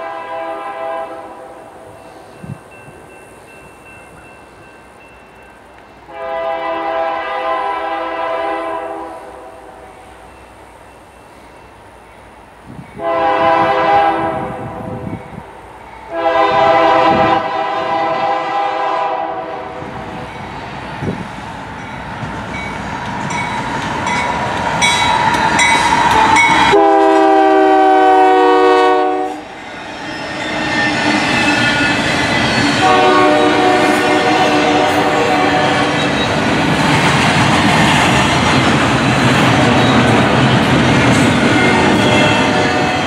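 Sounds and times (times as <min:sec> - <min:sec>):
locomotive air horn: 0:00.0 - 0:01.6, 0:06.1 - 0:09.9, 0:13.0 - 0:15.0, 0:16.1 - 0:19.8, 0:26.6 - 0:29.5, 0:32.8 - 0:36.0
train rumble and wheel clatter: 0:00.0 - 0:43.0.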